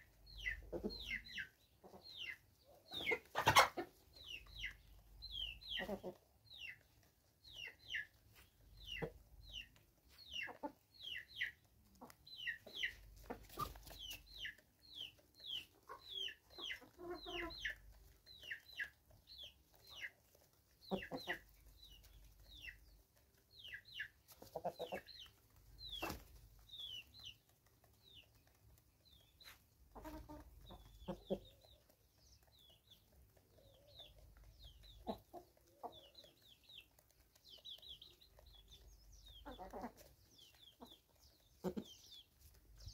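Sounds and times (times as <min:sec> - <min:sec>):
chickens clucking softly: 0:00.0 - 0:42.9.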